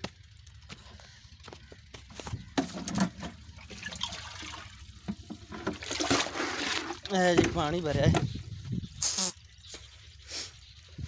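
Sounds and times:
water gurgling into jerrycan: 2.6s - 8.3s.

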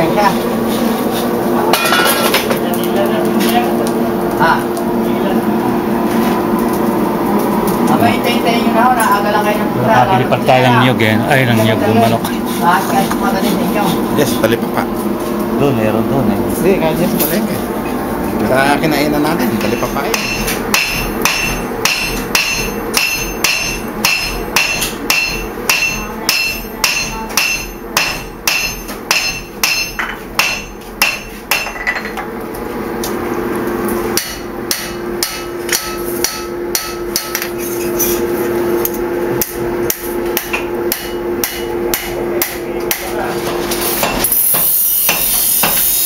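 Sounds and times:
steady hum: 0.0s - 46.0s
hammer ringing on anvil: 19.6s - 32.1s, 34.2s - 37.6s, 40.4s - 43.0s.

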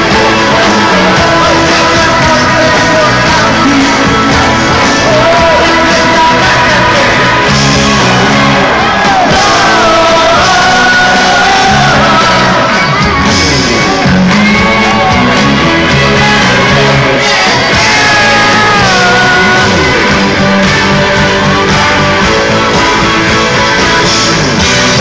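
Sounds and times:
crowd shouting and singing along: 0.0s - 25.0s
live pop-rock band: 0.0s - 25.0s
person singing: 0.0s - 25.0s.

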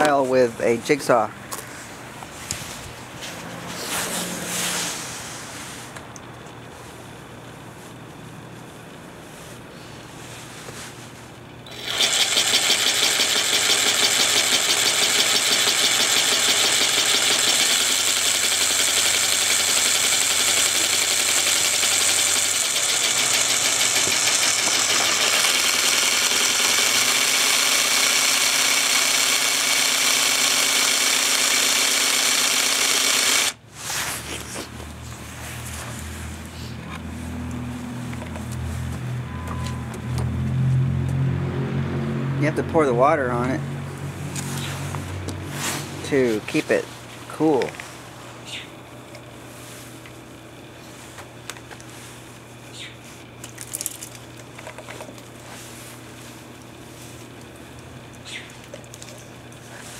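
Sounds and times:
jigsaw cutting tile: 11.7s - 33.6s.

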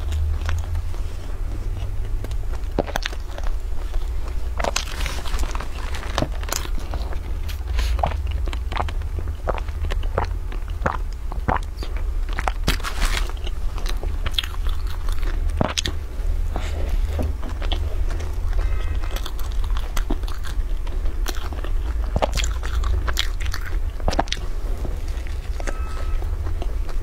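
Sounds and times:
chewing crusty bread: 0.0s - 27.0s
steady low hum: 0.0s - 27.0s.

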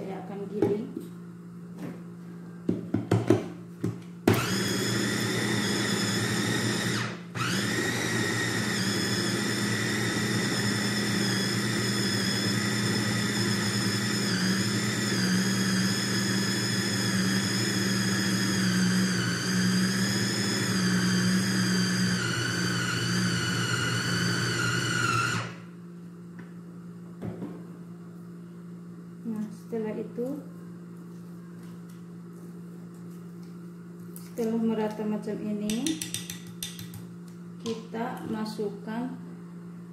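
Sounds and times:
food chopper motor whining: 4.2s - 25.7s
food chopper clicks: 4.3s - 25.5s.

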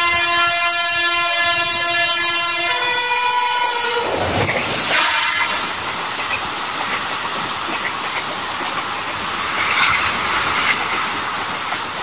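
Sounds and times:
train horn blaring: 0.0s - 5.8s
train rushing past: 0.0s - 12.0s.

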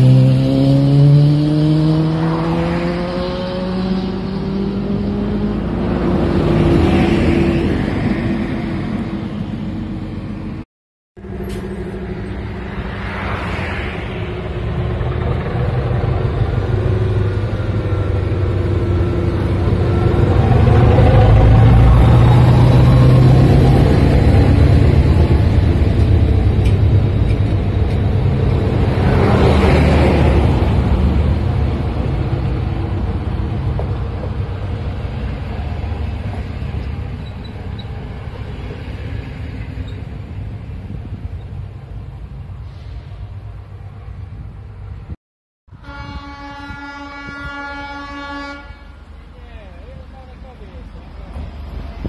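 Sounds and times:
diesel locomotive engine droning: 3.0s - 10.6s, 11.2s - 52.0s
train wheels on rails: 11.2s - 43.8s, 49.0s - 52.0s.

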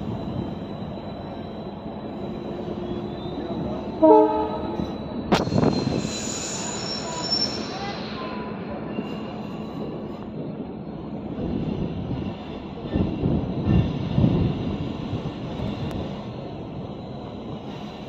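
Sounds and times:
train wheels on rails: 0.0s - 18.0s
high-pitched wheel squeal: 2.6s - 9.9s
train horn blast: 4.0s - 4.8s.

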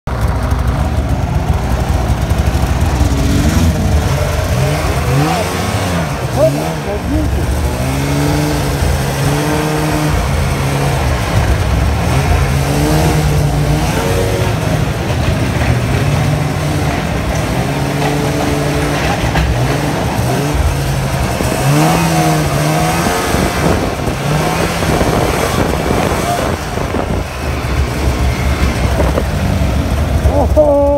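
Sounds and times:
snowmobile engine revving: 0.1s - 30.9s.

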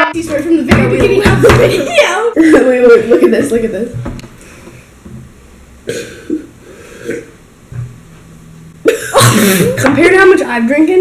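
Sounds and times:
person vocal outburst: 8.9s - 9.9s.

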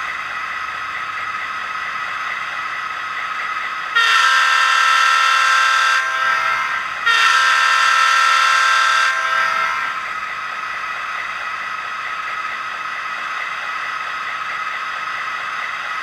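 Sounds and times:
diesel engine sound: 0.0s - 16.0s
diesel air horn blasts: 3.9s - 10.0s.

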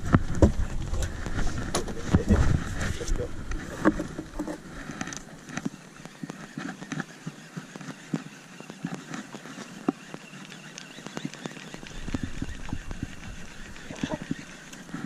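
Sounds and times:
fishing gear clicks and knocks: 0.2s - 15.0s.

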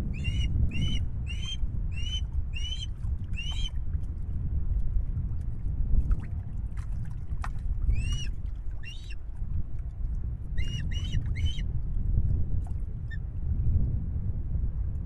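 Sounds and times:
steady low rumble: 0.0s - 15.0s
osprey whistled calls: 0.1s - 3.7s, 7.9s - 9.2s, 10.6s - 11.6s.

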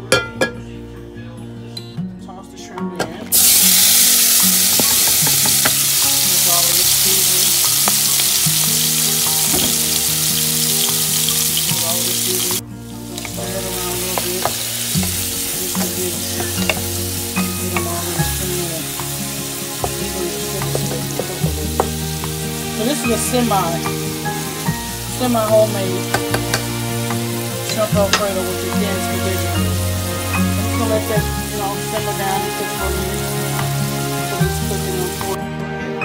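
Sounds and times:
shrimp sizzling in frying pan: 3.3s - 35.4s
wooden spatula tapping pan: 4.8s - 5.9s, 19.8s - 22.4s, 26.1s - 28.7s.

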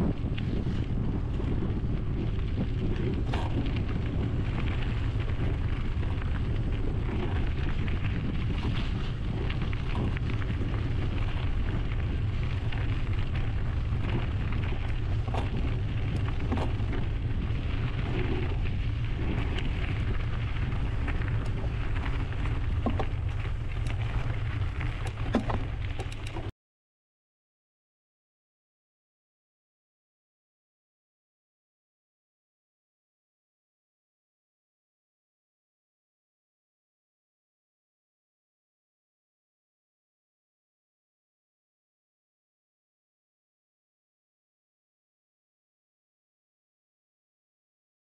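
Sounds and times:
bike rattling: 0.0s - 26.5s
low rumble: 0.0s - 26.5s
tyres crackling on trail: 0.0s - 26.5s
wind buffeting microphone: 0.0s - 26.5s.

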